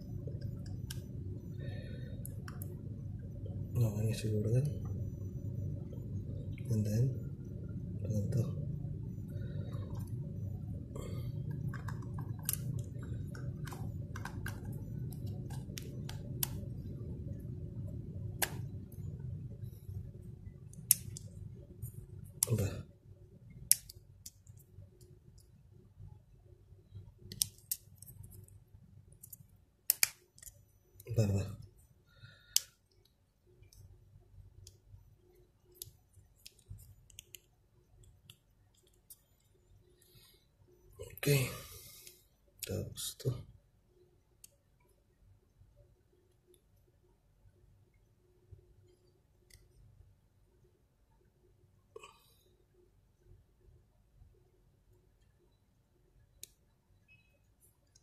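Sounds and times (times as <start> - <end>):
low background hum: 0.0 - 58.0
sharp plastic clicks: 29.2 - 30.6.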